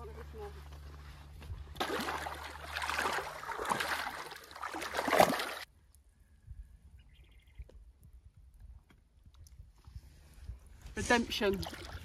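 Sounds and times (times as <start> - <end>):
fish thrashing and splashing: 1.8 - 5.7.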